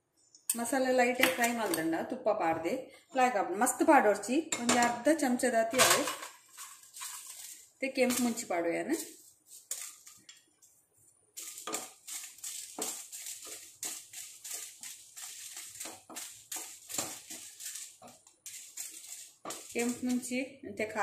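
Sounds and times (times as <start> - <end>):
chillies frying in ghee: 3.7 - 21.0
wooden spatula scraping: 5.7 - 20.4.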